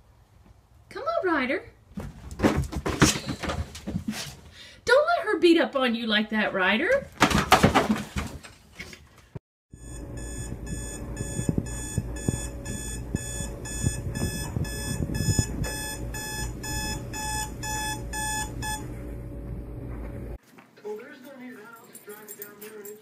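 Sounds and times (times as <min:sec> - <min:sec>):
lower alarm tone: 0:09.7 - 0:20.0
phone alarm beeping: 0:09.8 - 0:18.9.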